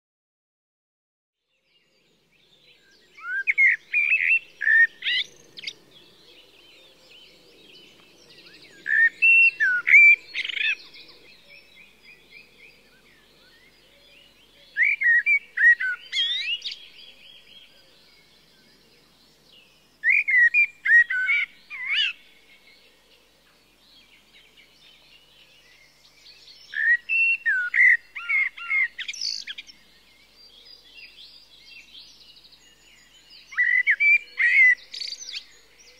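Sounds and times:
faint background birdsong: 0:01.4 - 0:35.9
songbird warbling: 0:26.6 - 0:29.8, 0:33.5 - 0:35.5.

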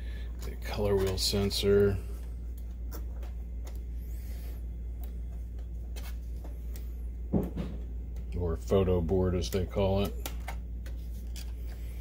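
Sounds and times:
steady low hum: 0:00.0 - 0:12.0
cables rustling: 0:00.2 - 0:07.2.

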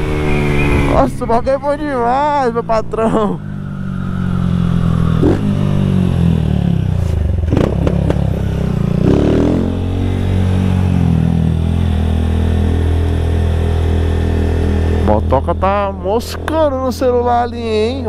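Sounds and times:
motorcycle engine running loud: 0:00.0 - 0:18.0.

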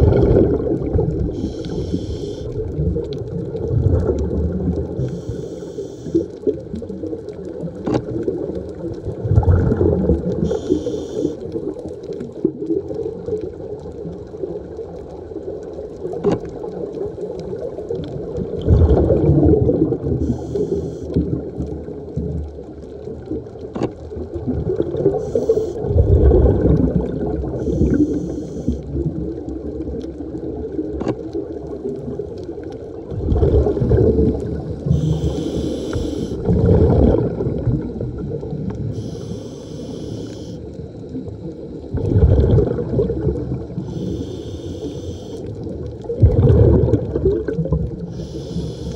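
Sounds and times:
exhaust bubbling underwater: 0:00.0 - 0:05.3, 0:06.0 - 0:48.9
muffled water rumble: 0:00.0 - 0:48.9
regulator inhale hiss: 0:01.2 - 0:02.6, 0:05.0 - 0:06.4, 0:10.4 - 0:11.5, 0:20.2 - 0:21.2, 0:25.1 - 0:25.9, 0:27.6 - 0:28.9, 0:34.5 - 0:36.5, 0:38.8 - 0:41.3, 0:43.8 - 0:45.5, 0:48.1 - 0:48.9.

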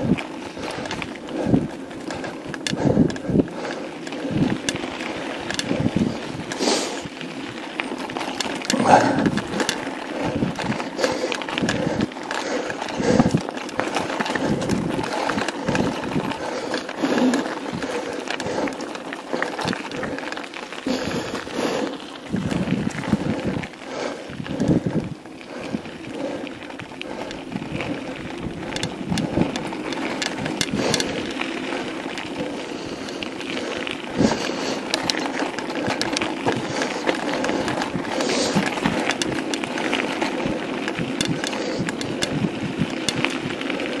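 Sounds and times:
wind rushing over microphone: 0:00.0 - 0:03.6, 0:04.2 - 0:07.2, 0:08.7 - 0:12.1, 0:12.9 - 0:13.4, 0:14.0 - 0:18.6, 0:21.0 - 0:34.9, 0:40.2 - 0:44.0
bike rattling over bumps: 0:00.0 - 0:44.0
tyres crunching on gravel: 0:00.0 - 0:44.0.

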